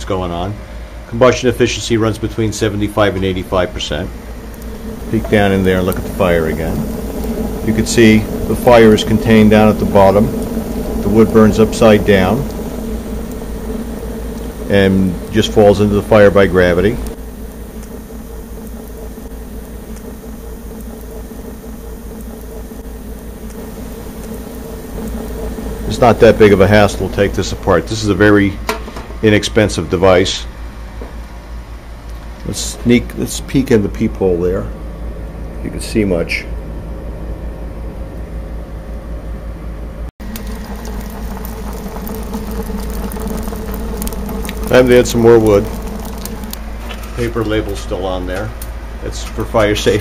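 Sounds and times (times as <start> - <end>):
boiler mechanical hum: 0.0 - 50.0
wood crackling in firebox: 4.1 - 28.0, 40.2 - 50.0.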